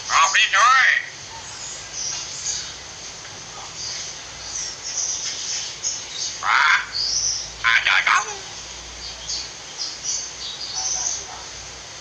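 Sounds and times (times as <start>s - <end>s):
small birds chirping: 0.0s - 12.0s
steady hiss: 0.0s - 12.0s
myna bird call: 5.9s - 11.5s.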